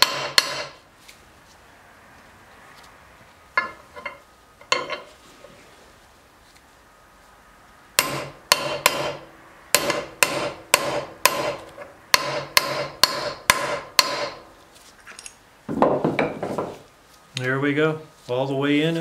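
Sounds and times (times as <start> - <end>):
hammer striking metal: 0.0 - 0.8, 8.0 - 14.4.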